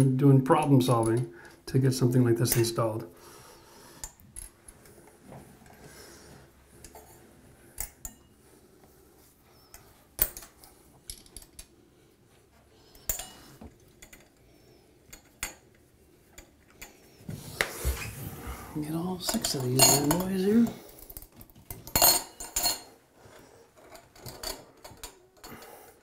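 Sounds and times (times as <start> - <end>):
light metal clicks and clinks: 12.9 - 15.7, 19.2 - 23.0.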